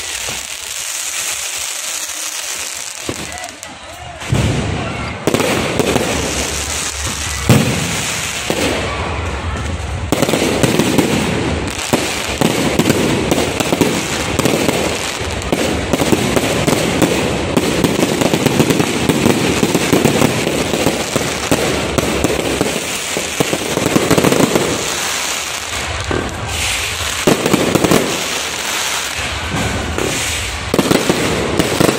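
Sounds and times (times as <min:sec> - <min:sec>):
fireworks bangs and crackling: 0:00.0 - 0:31.9.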